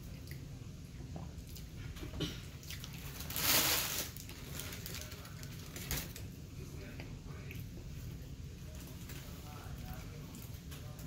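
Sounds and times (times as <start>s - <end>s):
person chewing food: 0.0s - 3.2s.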